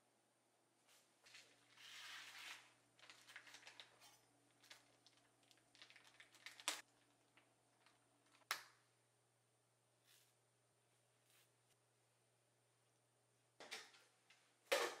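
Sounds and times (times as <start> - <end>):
plastic bag crinkling: 1.3 - 8.5.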